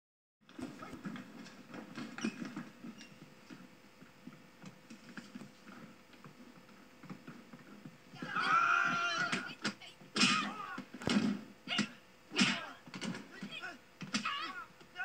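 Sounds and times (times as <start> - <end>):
faint clicks and rustles: 0.5 - 8.2
loud wavering voice calling out: 13.5 - 15.0.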